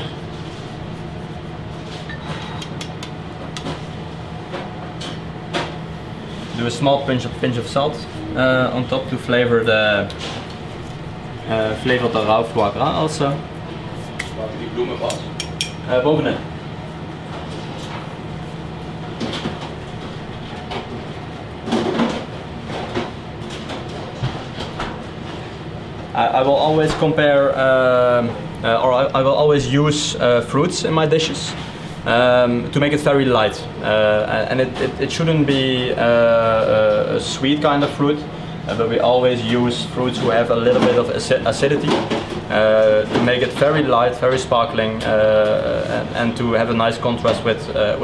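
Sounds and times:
kitchen ventilation hum: 0.0s - 48.0s
utensils clicking and tapping: 2.1s - 3.8s.

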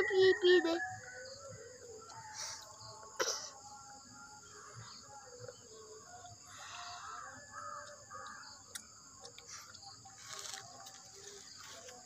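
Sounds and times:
birds chirping: 0.0s - 12.0s
high insect drone: 0.0s - 12.0s.

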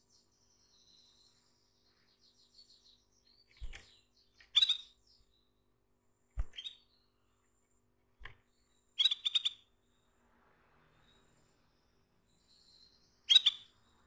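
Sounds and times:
canary twittering in trills: 2.0s - 5.3s, 6.4s - 7.0s, 8.7s - 9.8s, 12.3s - 14.0s.

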